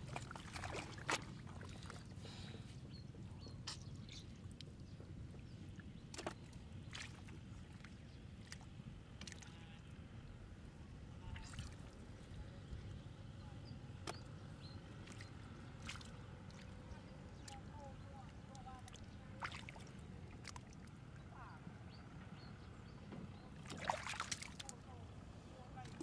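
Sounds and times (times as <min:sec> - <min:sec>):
water sloshing and splashing: 0:00.0 - 0:10.2, 0:11.0 - 0:13.0, 0:13.9 - 0:21.7, 0:23.2 - 0:26.0.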